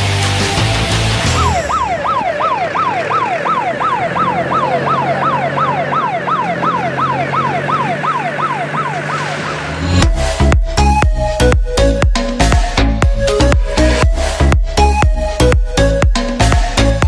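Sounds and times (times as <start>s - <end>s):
electronic siren yelping: 1.3s - 14.2s.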